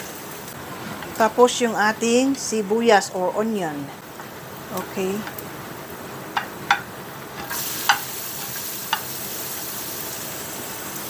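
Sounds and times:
onion sizzling in hot oil: 0:00.0 - 0:03.4, 0:04.0 - 0:11.0
spoon clicking against pan: 0:06.4 - 0:09.2.

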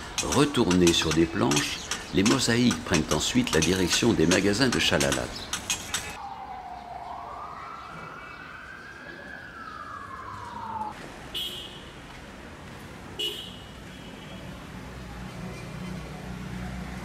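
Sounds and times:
street traffic noise: 0:00.0 - 0:17.0
siren wailing: 0:06.2 - 0:11.0.

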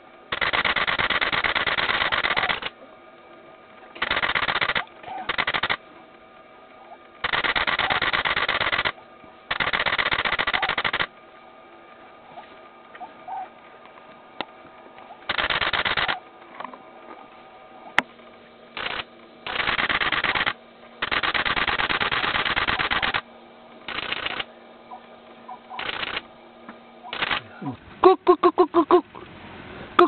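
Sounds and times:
rapid clicking bursts: 0:00.3 - 0:02.7, 0:04.0 - 0:05.8, 0:07.2 - 0:11.1, 0:15.2 - 0:16.2, 0:18.8 - 0:24.5, 0:25.7 - 0:26.3, 0:27.1 - 0:27.6.

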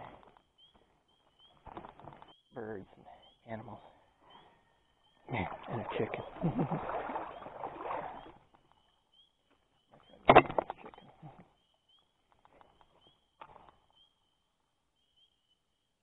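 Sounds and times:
bird chirping: 0:00.0 - 0:06.5, 0:07.2 - 0:16.0
stream water splashing: 0:05.3 - 0:08.5.

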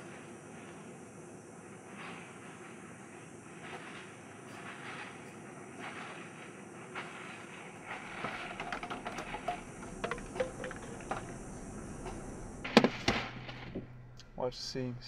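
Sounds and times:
steady outdoor hiss: 0:00.0 - 0:15.0
plastic cooler clicks and knocks: 0:08.2 - 0:11.5.

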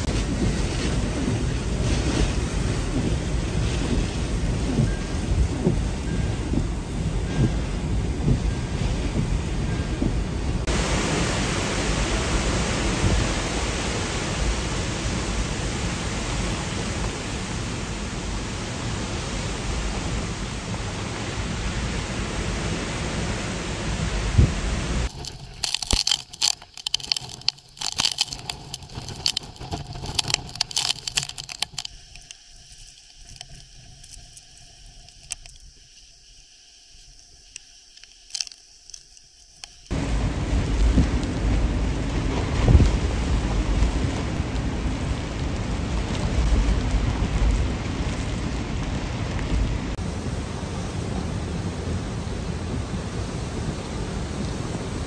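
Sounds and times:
strong wind: 0:00.0 - 0:25.2, 0:39.9 - 0:55.0
heavy rain: 0:00.0 - 0:32.2, 0:39.9 - 0:55.0.

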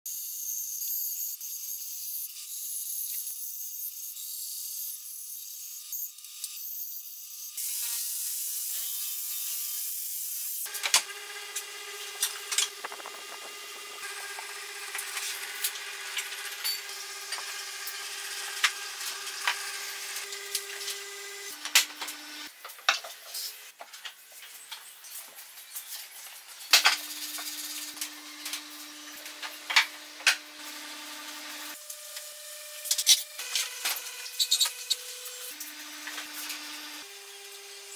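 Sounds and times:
band saw cutting wood: 0:10.6 - 0:22.5, 0:26.6 - 0:37.9
steady hum: 0:10.8 - 0:17.0
wood rubbing on wood: 0:10.9 - 0:16.0.

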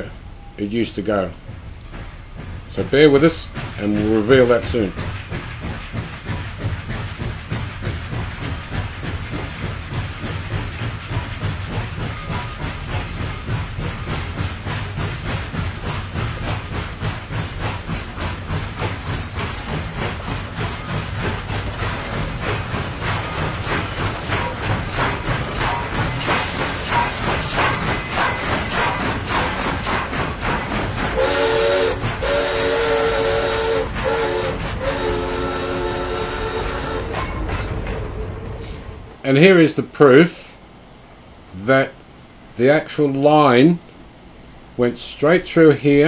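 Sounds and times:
steam locomotive chuffing: 0:00.0 - 0:46.0
steam hiss: 0:01.8 - 0:37.1
steam locomotive whistle: 0:31.2 - 0:37.3.

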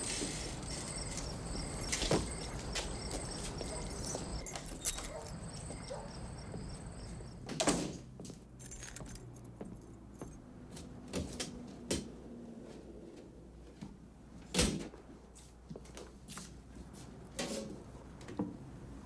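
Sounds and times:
keys jangling: 0:00.8 - 0:07.1, 0:08.6 - 0:10.5.

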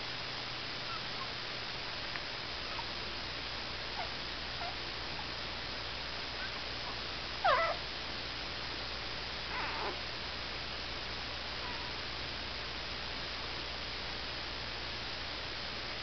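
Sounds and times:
steady hiss: 0:00.0 - 0:16.0
puppies squeaking and whimpering: 0:07.4 - 0:07.8.

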